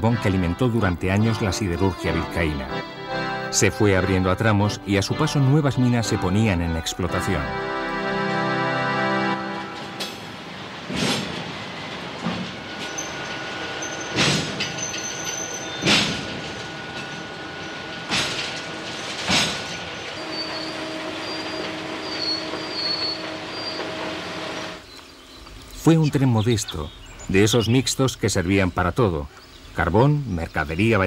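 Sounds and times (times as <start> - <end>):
train wagons rumbling: 0.0 - 31.0
sharp metallic clanks: 9.7 - 24.2
steel wheels squealing on rail: 9.8 - 24.9.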